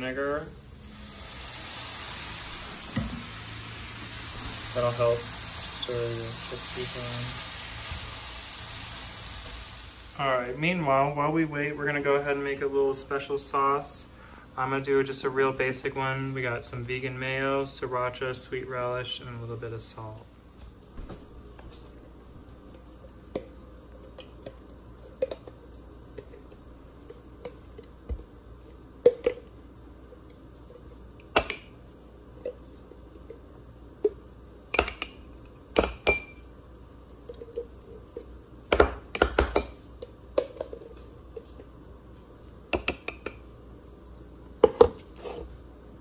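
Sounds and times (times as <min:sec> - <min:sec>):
spoon clinking in glass jar: 0:31.4 - 0:31.8, 0:34.7 - 0:36.4.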